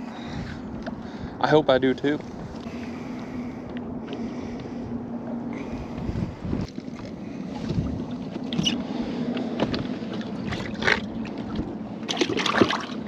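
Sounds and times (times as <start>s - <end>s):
steady low hum: 0.0s - 13.0s
fish knocks and splashes: 9.4s - 13.0s.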